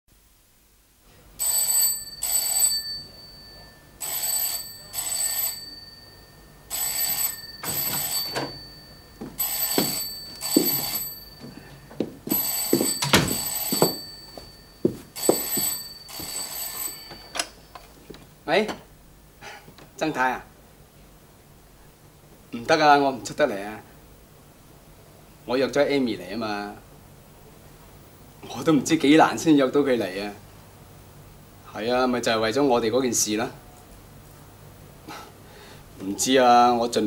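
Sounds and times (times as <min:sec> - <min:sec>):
telephone bell ringing: 0:01.4 - 0:17.7.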